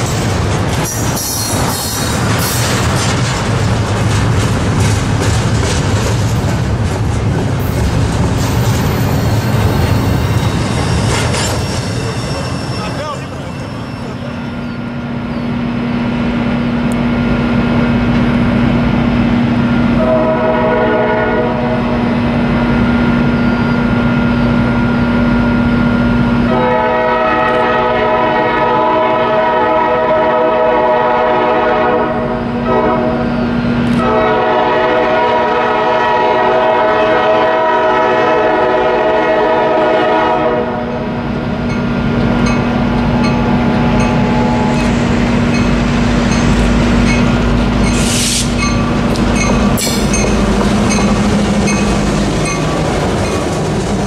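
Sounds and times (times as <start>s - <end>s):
low hum and rail rumble: 0.0s - 12.3s, 13.1s - 54.0s
locomotive air horn: 20.0s - 22.0s, 26.5s - 33.3s, 34.0s - 41.0s.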